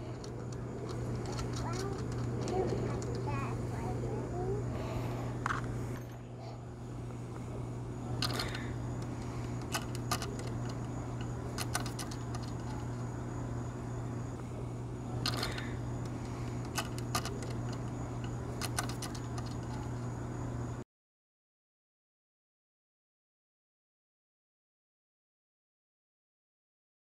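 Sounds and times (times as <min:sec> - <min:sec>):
steady low hum: 0:00.0 - 0:20.8
small metallic clicks and clinks: 0:08.2 - 0:13.0, 0:15.2 - 0:20.0.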